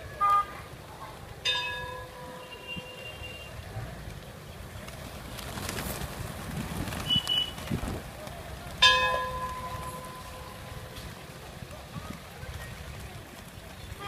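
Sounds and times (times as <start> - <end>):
street rumble: 0.0 - 14.0
wind on microphone: 6.0 - 8.2.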